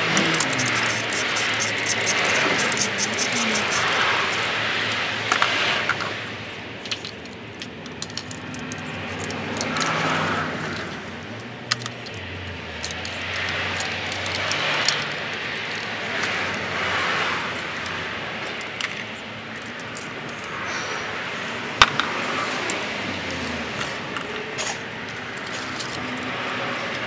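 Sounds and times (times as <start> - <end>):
background vehicle noise: 0.0 - 27.0
clicks and rattles of car parts: 0.1 - 6.2, 6.8 - 16.6, 17.8 - 23.0.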